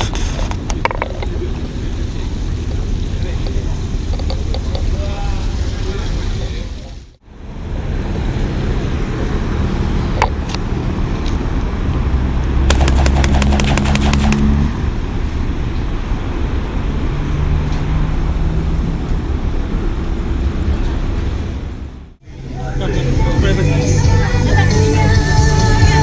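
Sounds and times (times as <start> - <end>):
car engine and road rumble: 0.0 - 26.0
rapid ticking: 12.7 - 14.5.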